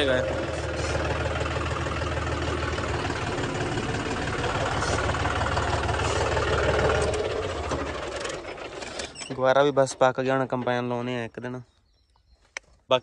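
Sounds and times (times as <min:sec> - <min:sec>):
tractor diesel engine running: 0:00.0 - 0:11.3.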